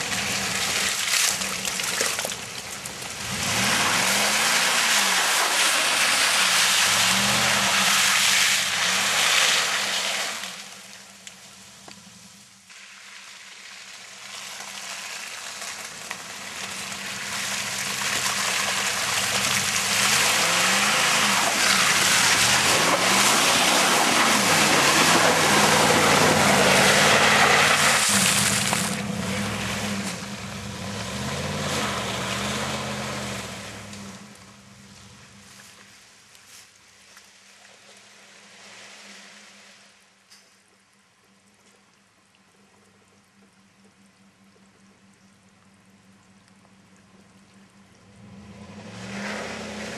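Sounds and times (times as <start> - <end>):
tyres spinning in mud: 0.0 - 10.5, 12.7 - 34.1
truck engine revving: 3.1 - 10.3, 17.3 - 34.4, 48.2 - 49.9.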